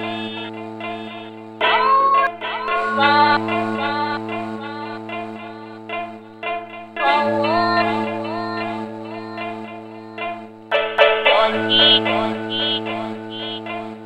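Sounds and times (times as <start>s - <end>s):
sampled woman singing: 0.0s - 10.4s
plucked string notes: 0.0s - 14.0s
synthesizer drone: 0.0s - 14.0s.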